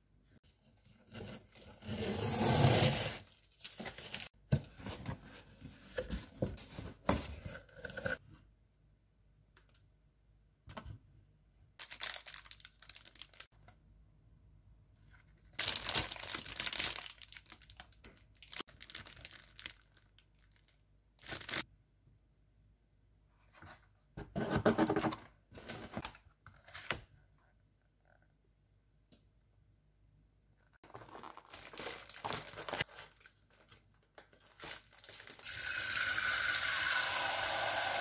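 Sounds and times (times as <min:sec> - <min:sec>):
plastic bags crinkling: 0:11.8 - 0:13.5, 0:15.5 - 0:21.6, 0:30.8 - 0:35.4.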